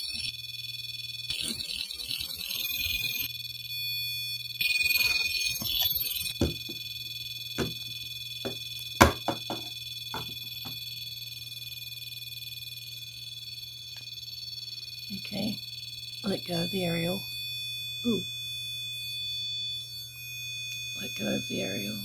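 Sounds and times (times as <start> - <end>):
high pulsing alarm tone: 0.0 - 22.0
sharp clicks and knocks: 8.5 - 10.8.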